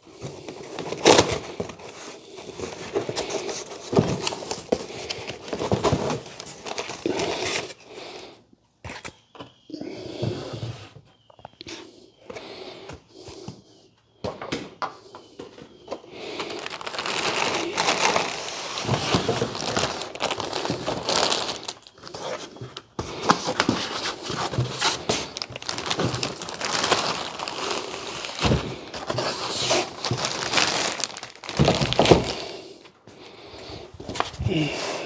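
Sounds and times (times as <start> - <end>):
plastic wrapping crinkling: 0.2 - 7.8, 15.5 - 32.6.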